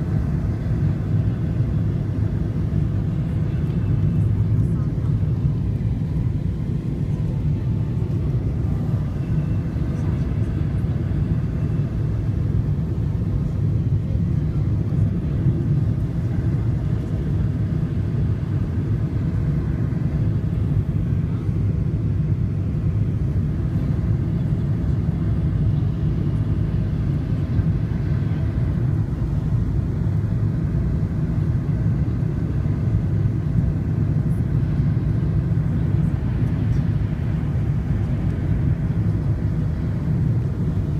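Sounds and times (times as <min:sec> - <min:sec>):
airliner cabin engine rumble: 0:00.0 - 0:40.9.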